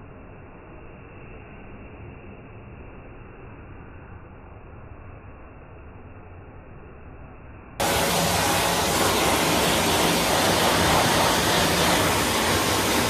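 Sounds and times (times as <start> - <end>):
dog grooming dryer blowing air: 7.8 - 13.0.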